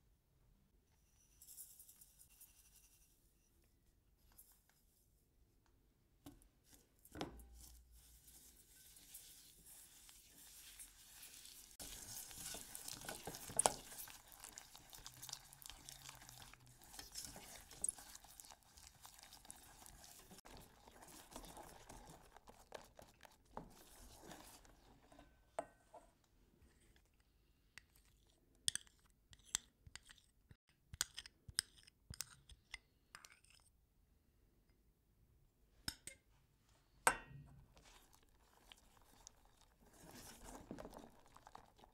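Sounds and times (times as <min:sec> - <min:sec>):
whisk scraping and swishing: 0:07.5 - 0:26.0, 0:37.8 - 0:41.9
whisk clinking against metal pan: 0:08.5 - 0:20.7.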